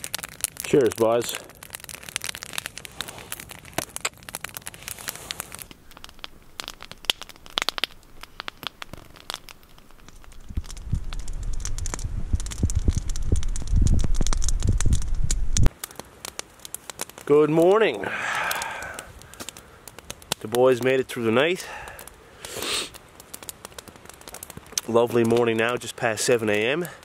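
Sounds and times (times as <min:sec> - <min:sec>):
wood fire crackling and popping: 0:00.0 - 0:27.0
low rumble: 0:10.4 - 0:15.7.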